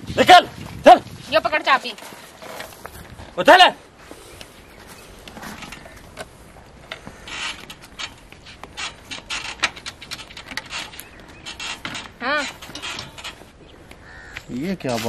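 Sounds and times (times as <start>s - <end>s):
people shuffling on dirt: 0.0s - 9.5s
climbing onto motorcycle: 4.4s - 14.5s.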